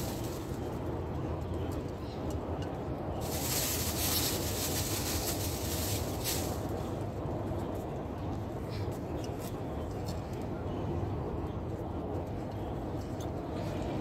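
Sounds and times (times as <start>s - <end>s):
rustling of plants and potting material: 0.0s - 1.8s, 3.1s - 7.9s.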